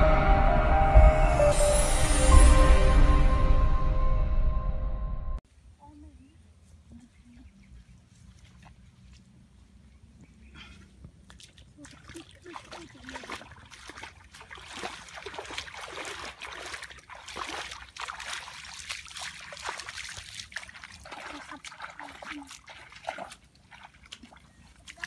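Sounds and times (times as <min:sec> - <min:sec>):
bare feet splashing through water: 0:07.7 - 0:25.0.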